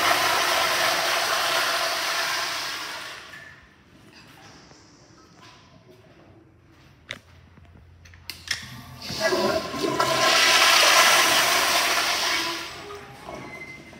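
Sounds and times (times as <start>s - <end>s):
water rushing through toilet bowl: 0.0s - 3.6s, 8.8s - 13.0s.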